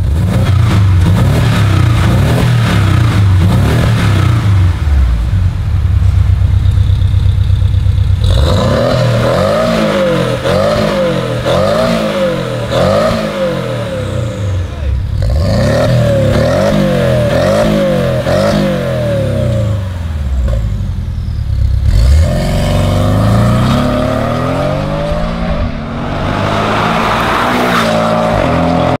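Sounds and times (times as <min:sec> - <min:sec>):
car engine revving: 0:00.0 - 0:29.0
car accelerating hard: 0:08.2 - 0:20.7, 0:21.8 - 0:29.0.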